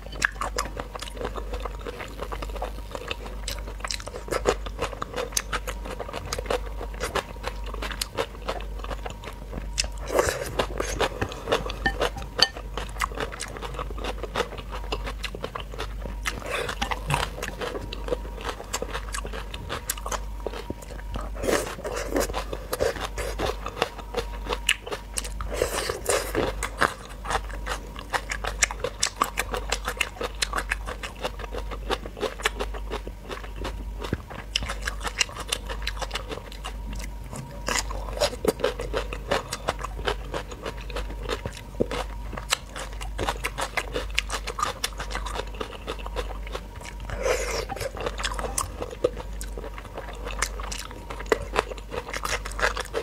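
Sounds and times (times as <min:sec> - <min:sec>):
crunching and chewing vegetables: 0:00.0 - 0:53.0.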